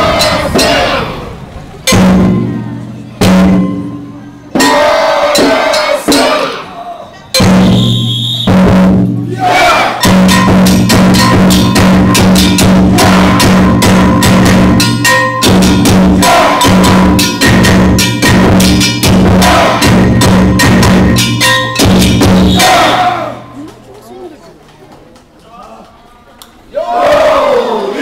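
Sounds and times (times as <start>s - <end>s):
metal gong ringing: 0.0s - 6.4s, 10.0s - 23.6s
taiko drums: 0.0s - 6.7s, 7.3s - 23.8s.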